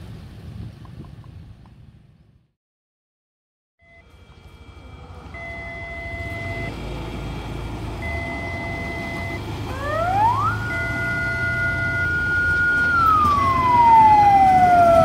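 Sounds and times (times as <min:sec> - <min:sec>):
rail vehicle rumble: 0:00.0 - 0:02.5, 0:03.8 - 0:15.0
electronic warning beep: 0:03.8 - 0:06.8, 0:08.0 - 0:09.4, 0:10.4 - 0:12.4
siren wailing: 0:03.8 - 0:15.0.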